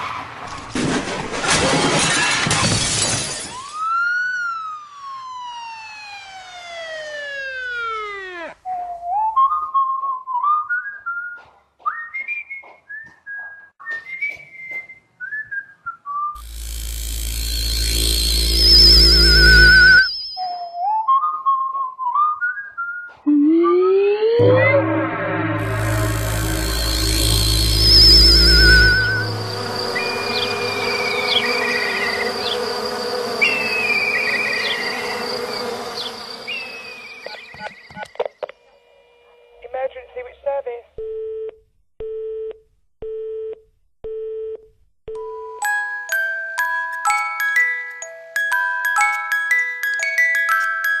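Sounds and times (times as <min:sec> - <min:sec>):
person whistling a tune: 0:08.7 - 0:16.4
insect-like buzzing and chirping: 0:16.4 - 0:20.6, 0:25.7 - 0:38.0
low rumble: 0:24.4 - 0:36.2.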